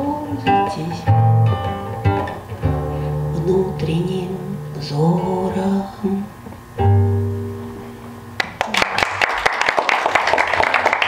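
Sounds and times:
acoustic guitar chord ringing: 0.0s - 8.4s
audience applause: 8.4s - 11.0s.

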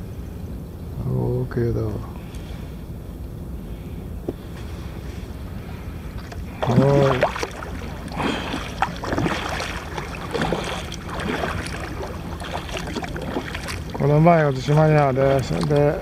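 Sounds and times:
water splashing and dripping: 6.2s - 16.0s.

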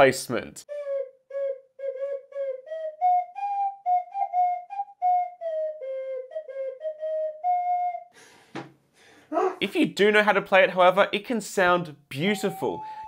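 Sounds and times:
ocarina notes: 0.7s - 8.1s, 12.1s - 13.0s.

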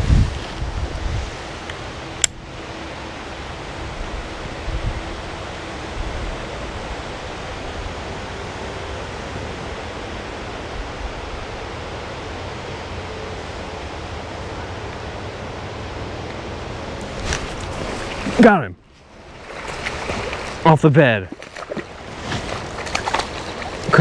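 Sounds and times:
fish splashing at lure: 21.4s - 24.0s.

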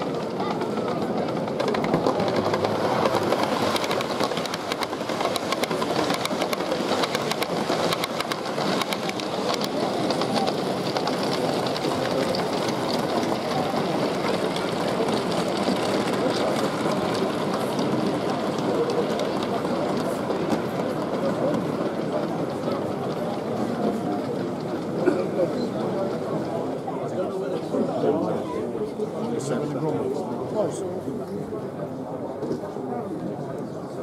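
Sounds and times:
wheels clicking over rail joints: 0.0s - 26.8s
murmur of crowd: 0.0s - 34.0s
model train motor whirring: 0.4s - 21.6s.

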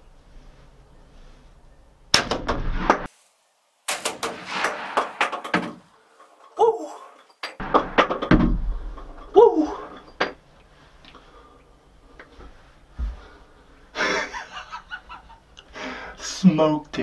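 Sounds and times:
rustling: 2.6s - 7.6s
shotgun blast: 3.9s - 5.9s
loud bangs: 3.9s - 6.3s.

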